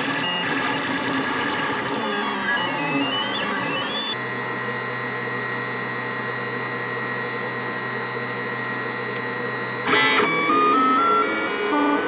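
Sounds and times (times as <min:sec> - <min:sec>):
printer humming and whining: 0:00.0 - 0:12.0
printer tones stepping in pitch: 0:02.1 - 0:04.2.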